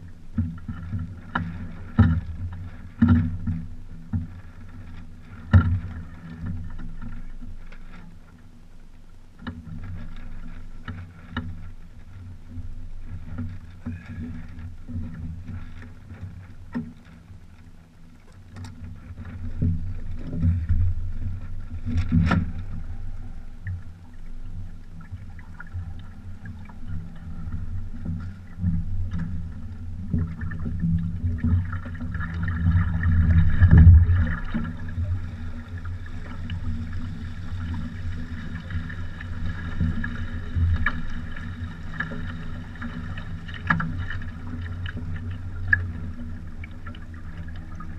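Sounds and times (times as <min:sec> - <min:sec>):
water sloshing against hull: 0:00.0 - 0:47.9
water rushing: 0:22.2 - 0:47.9.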